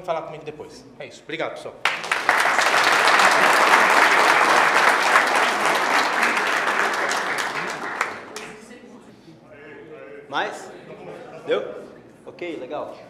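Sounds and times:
audience applauding: 1.8 - 8.7.

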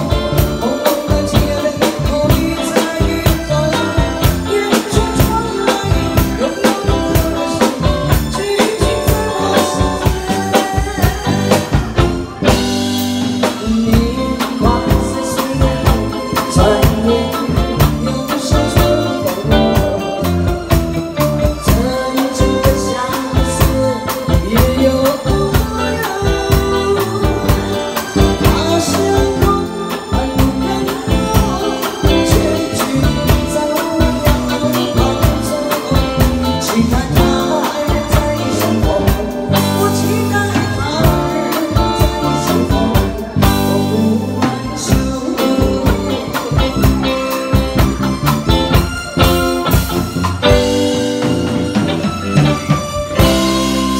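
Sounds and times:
woman singing into a microphone: 0.0 - 47.8
band with drum kit: 0.0 - 53.9.

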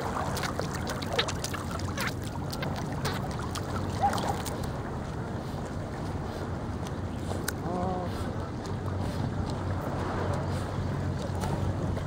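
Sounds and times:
dog paddling splashes: 0.0 - 6.4
sea water lapping: 0.0 - 12.0.

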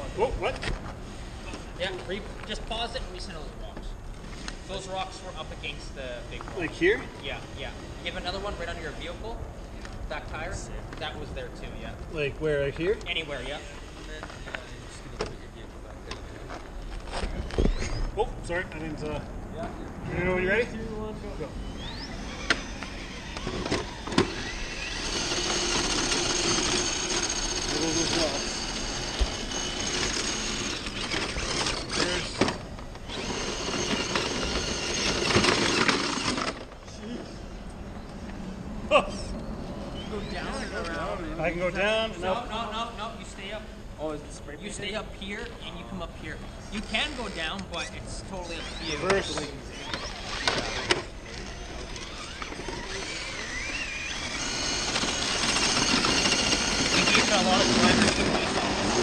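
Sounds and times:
rc truck motor whining: 21.4 - 36.9, 46.6 - 59.0
tires scrabbling in dirt: 21.8 - 36.8, 48.9 - 59.0.

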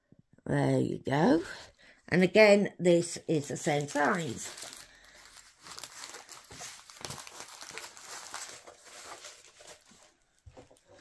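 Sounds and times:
plastic film crinkling: 3.5 - 11.0.

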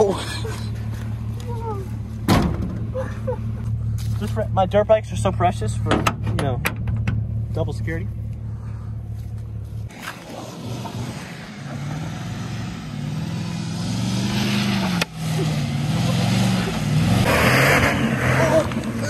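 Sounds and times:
van engine revving: 9.8 - 19.0.

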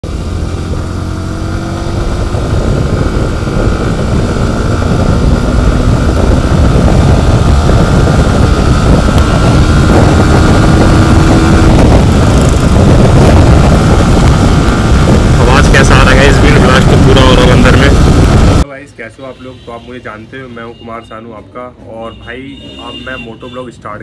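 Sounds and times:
motorcycle engine: 0.0 - 18.6
wind noise: 0.0 - 18.6.

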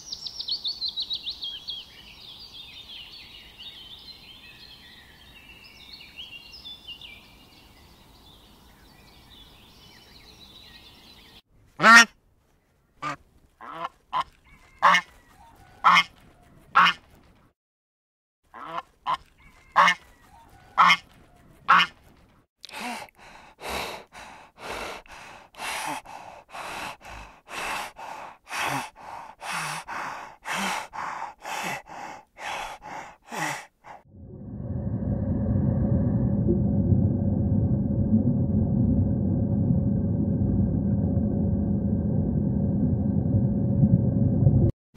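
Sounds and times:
geese honking: 20.7 - 21.1.

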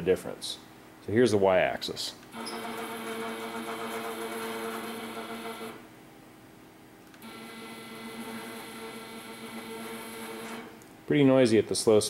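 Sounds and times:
stepper motor buzzing: 2.3 - 5.8, 7.2 - 10.7.

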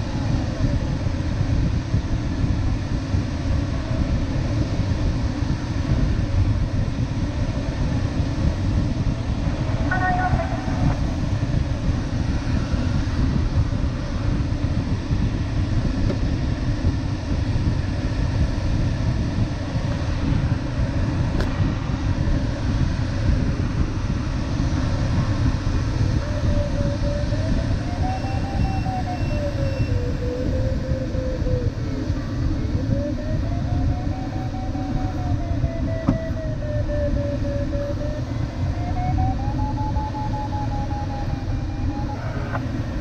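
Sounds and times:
airflow noise in cockpit: 0.0 - 43.0
variometer tone rising and falling: 9.7 - 11.7, 24.9 - 43.0.

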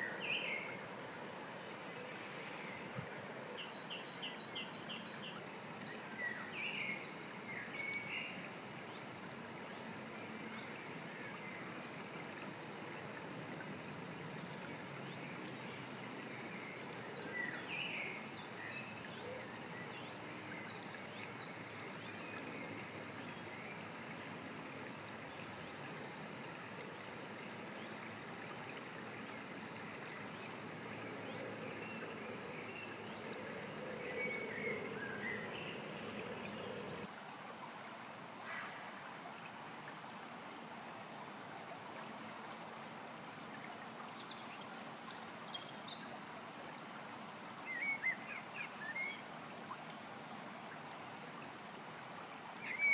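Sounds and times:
stream running over pebbles: 0.0 - 52.9
songbirds calling: 30.0 - 37.1.

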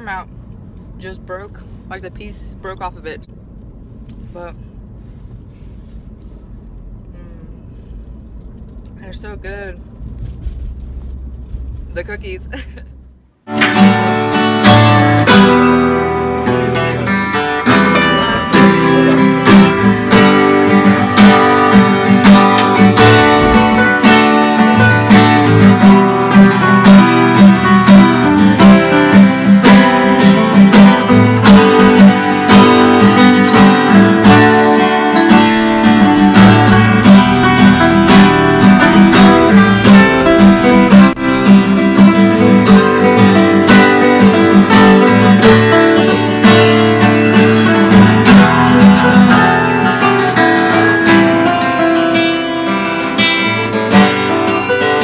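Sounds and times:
acoustic guitar strumming: 13.4 - 55.0.

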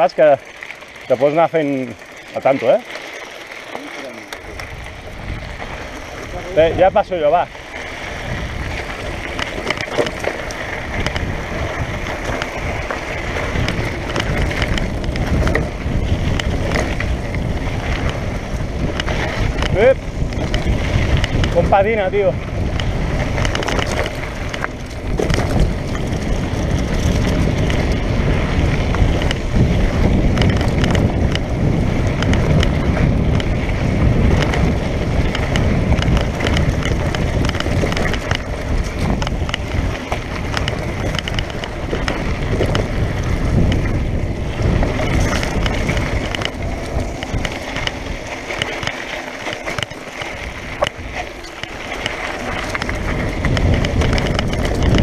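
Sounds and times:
bike knocking and rattling: 0.0 - 55.0
bike tyres on dirt and gravel: 0.0 - 55.0
wind on microphone: 4.2 - 55.0.

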